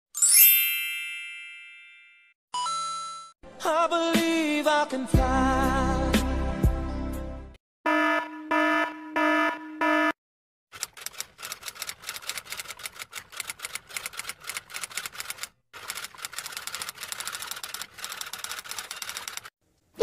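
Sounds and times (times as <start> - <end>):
alarm beeping: 7.9 - 10.2
typewriter clacking: 10.8 - 19.5.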